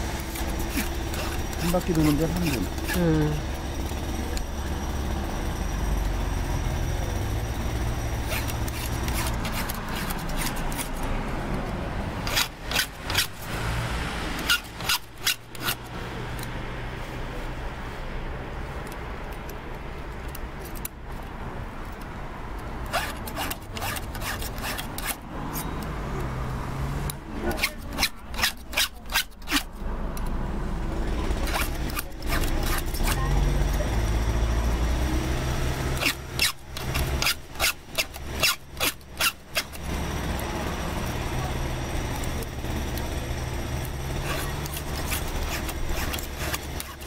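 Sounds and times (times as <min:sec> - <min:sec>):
file rasping on chainsaw chain: 0:00.0 - 0:04.9, 0:07.7 - 0:11.1, 0:12.2 - 0:16.4, 0:22.8 - 0:25.8, 0:27.4 - 0:29.8, 0:31.3 - 0:34.2, 0:35.8 - 0:47.0.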